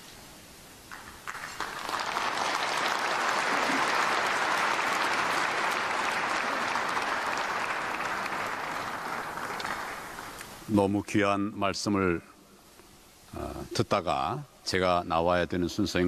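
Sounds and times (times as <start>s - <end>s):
large audience applauding: 0.9s - 10.5s.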